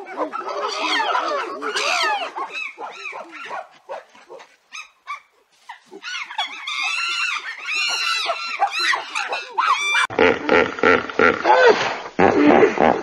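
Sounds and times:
chimpanzees calling: 0.0 - 3.7, 4.7 - 10.2.

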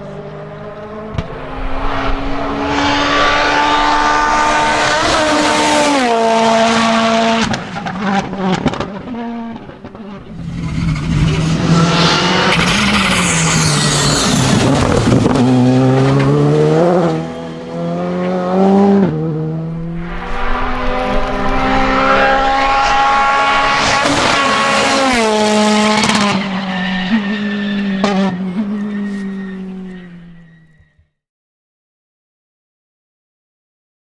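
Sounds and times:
rally car engines revving: 0.0 - 30.9
tyre squeal: 25.8 - 31.1.

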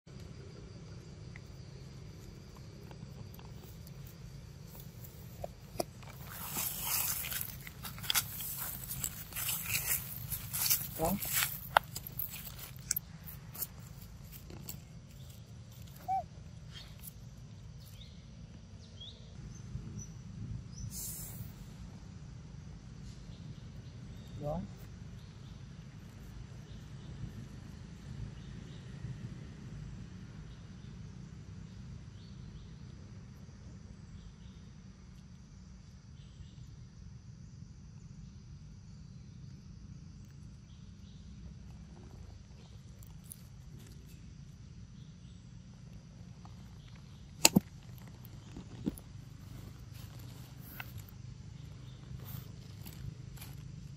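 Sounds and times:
low steady rumble: 0.1 - 53.9
dry leaves rustling and crackling: 4.9 - 14.7
faint high chirps: 15.1 - 17.2
faint bird chirps: 15.1 - 21.6, 23.0 - 25.6.

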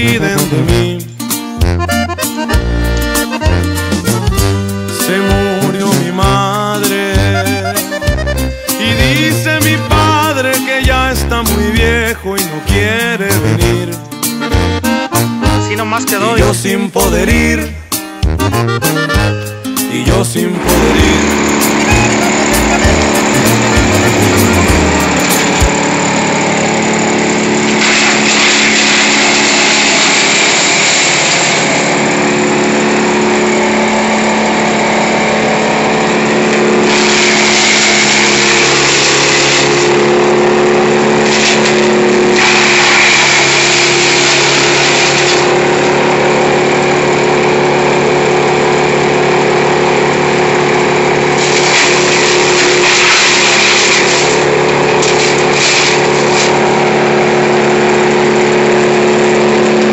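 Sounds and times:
wood chipper grinding branches: 0.0 - 1.0, 2.6 - 13.8, 20.2 - 59.9.

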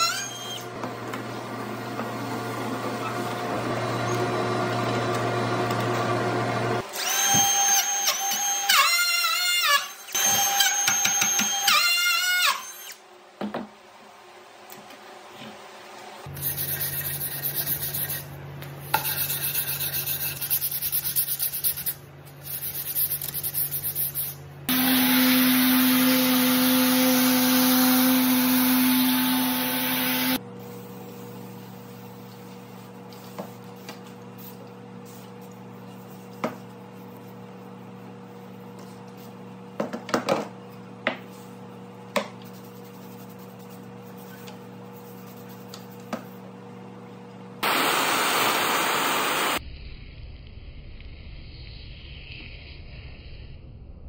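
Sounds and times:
random orbital sander: 24.7 - 30.4, 47.6 - 49.6
router table cutting wood: 24.7 - 30.4.

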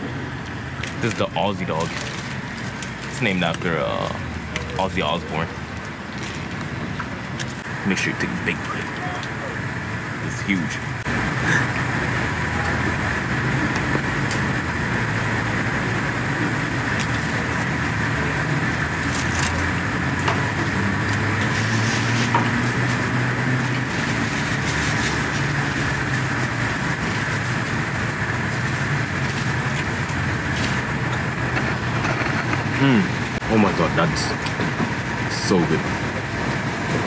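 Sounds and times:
road traffic: 0.0 - 37.0.

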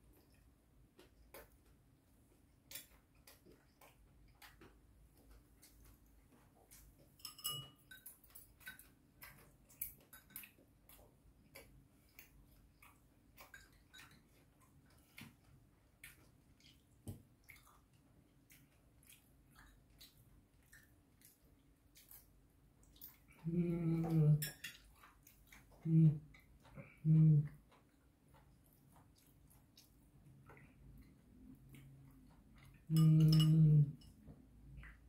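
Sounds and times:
chopsticks tapping ceramic bowls: 7.2 - 8.9, 32.9 - 34.2
person speaking: 32.9 - 34.0.

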